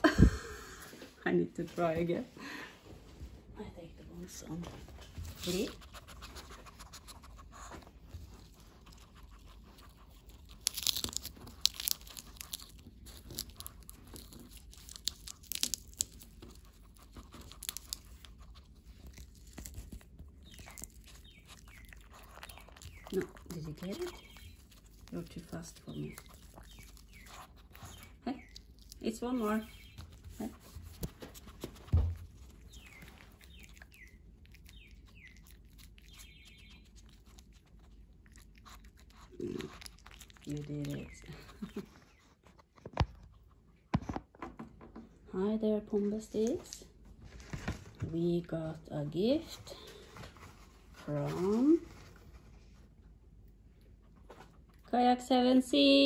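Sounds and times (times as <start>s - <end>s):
lettuce leaf crackling and tearing: 8.4s - 31.7s, 32.4s - 41.9s.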